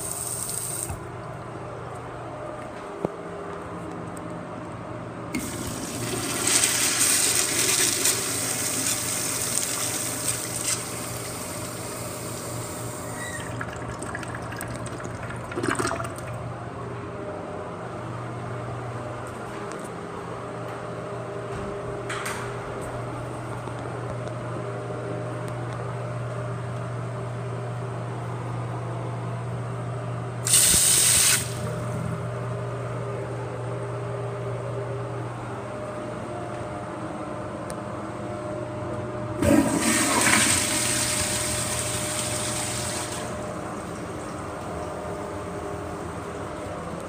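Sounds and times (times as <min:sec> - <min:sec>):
toilet flushing: 0:05.3 - 0:16.4, 0:30.5 - 0:31.7, 0:39.4 - 0:44.9.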